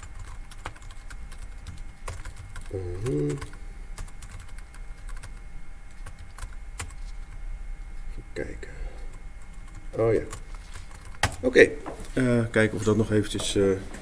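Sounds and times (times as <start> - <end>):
keyboard typing: 0.0 - 7.1, 9.4 - 11.4
man humming: 2.7 - 3.7.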